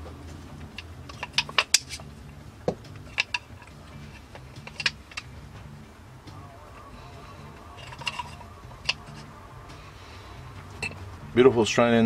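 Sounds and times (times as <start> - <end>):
wooden scales clicking together: 0.5 - 5.7, 7.5 - 9.3.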